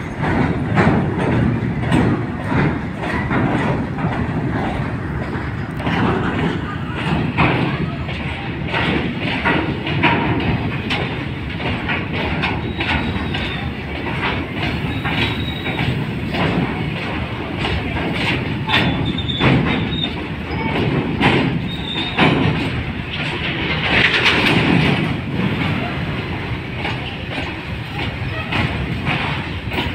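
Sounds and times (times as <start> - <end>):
freight train rumble: 0.0 - 29.9
wheels clacking over rail joints: 0.0 - 29.9
high wheel squeals: 14.8 - 15.9, 18.9 - 20.6, 21.6 - 22.2.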